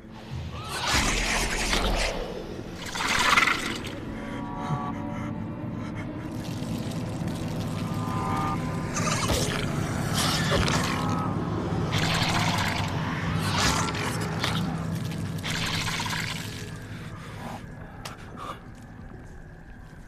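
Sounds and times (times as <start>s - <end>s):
low steady drone: 0.0s - 20.0s.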